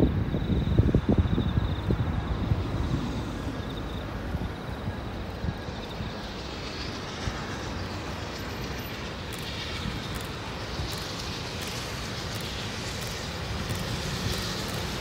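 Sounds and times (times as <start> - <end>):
diesel locomotive engine rumble: 0.0 - 15.0.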